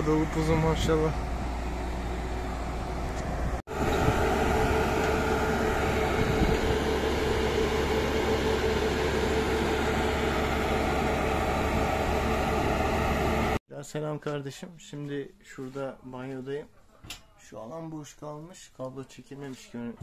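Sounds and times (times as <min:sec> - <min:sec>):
concrete pump engine drone: 0:00.0 - 0:13.6.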